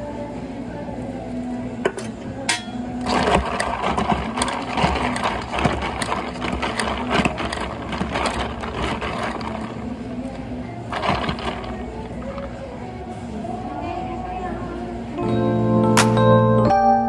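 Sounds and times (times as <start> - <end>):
ice clinking in plastic cup: 2.6 - 12.8.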